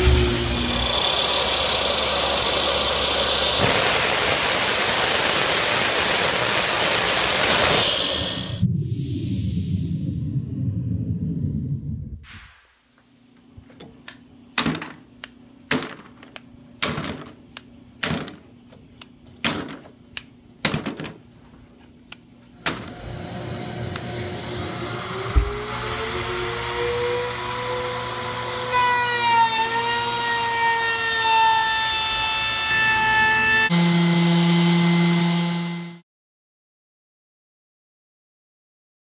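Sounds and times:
electric power tool motor running: 0.0 - 8.6, 22.7 - 36.0
sharp wooden knocks: 14.6 - 15.0, 15.7 - 17.4, 18.0 - 18.4, 19.4 - 19.9, 20.6 - 21.2.

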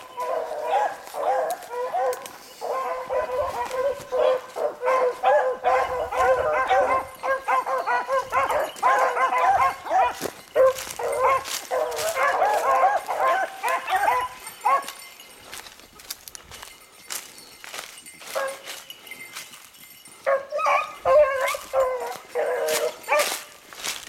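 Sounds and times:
hounds baying: 0.0 - 24.0.

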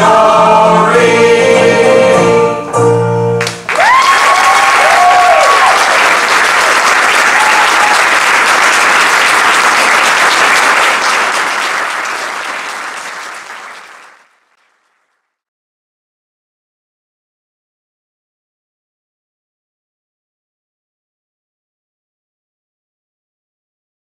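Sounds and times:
choir singing held chord: 0.0 - 3.0
audience applauding: 3.4 - 15.3.

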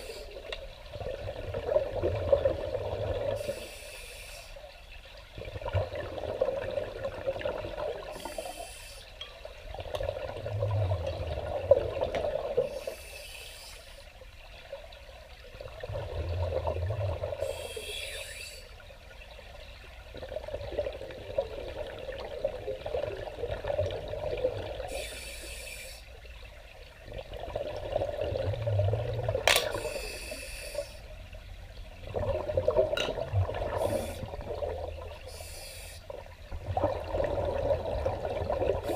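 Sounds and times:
scuba regulator hiss: 3.4 - 4.6, 8.1 - 9.1, 12.7 - 14.1, 17.4 - 18.8, 24.9 - 26.1, 29.7 - 31.1, 33.8 - 34.3, 35.3 - 36.1
exhaled bubbles rushing: 5.4 - 8.1, 9.8 - 12.7, 15.5 - 17.6, 27.0 - 29.9, 32.0 - 35.4, 36.4 - 38.9.

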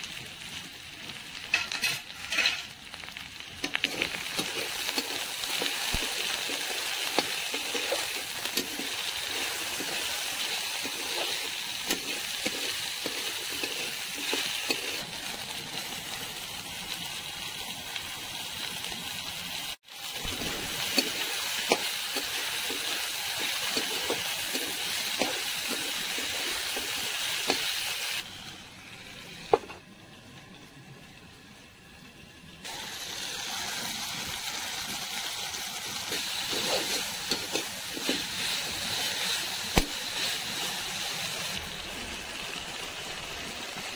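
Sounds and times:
vegetables sizzling in hot oil: 0.0 - 43.9
steel lid clanking on pan: 1.5 - 2.7
metal spatula scraping pan: 1.5 - 2.8, 36.1 - 38.7.

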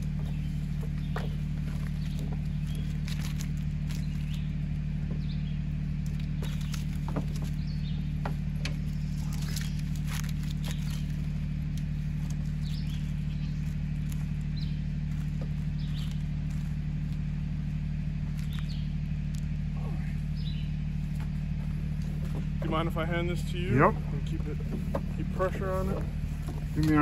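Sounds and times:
rope clicks and rustles: 0.0 - 5.3, 5.9 - 19.6
diesel engine idling: 0.0 - 27.0.

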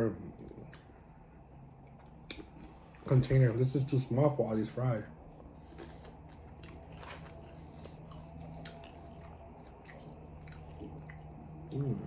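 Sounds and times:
mouth chewing crunchy food: 5.2 - 12.0.

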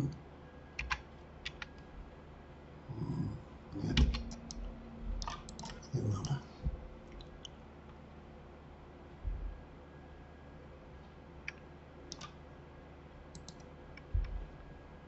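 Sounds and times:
keyboard keys and mouse clicking: 0.8 - 1.8, 3.8 - 7.6, 11.4 - 12.4, 13.3 - 14.4
dull low thumps: 6.6 - 7.2, 9.2 - 9.6, 14.1 - 14.6.

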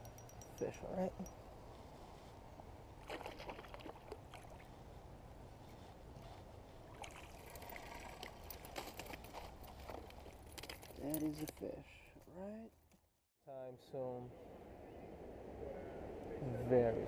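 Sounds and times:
creek water: 2.0 - 10.2
small water splashes: 3.0 - 4.7, 6.9 - 8.7.

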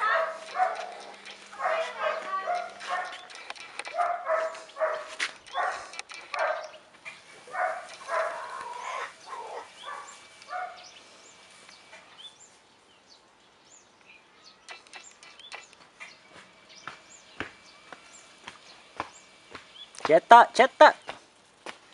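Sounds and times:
dog barking: 0.0 - 6.8, 7.5 - 10.8.

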